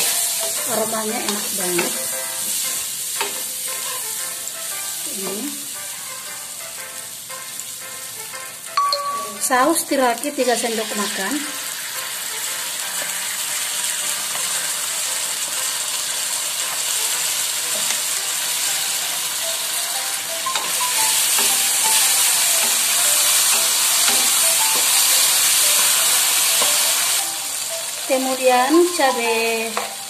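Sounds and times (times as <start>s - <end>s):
sausage sizzling in a wok: 0.0s - 30.0s.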